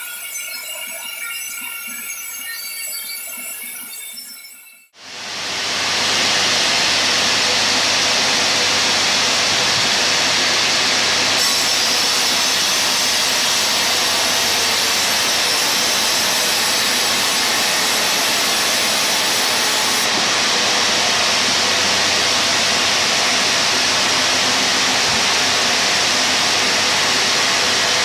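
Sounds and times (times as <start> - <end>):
band saw cutting wood: 5.6 - 28.0.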